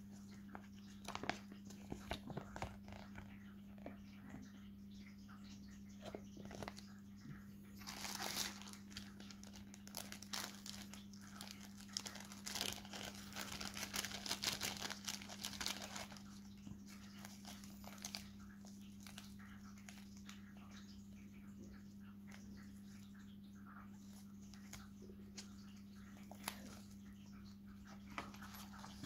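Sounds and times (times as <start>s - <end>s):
faint low hum: 0.0s - 29.0s
bubble wrap and paper crinkling: 0.5s - 3.2s, 7.8s - 20.3s, 28.1s - 29.0s.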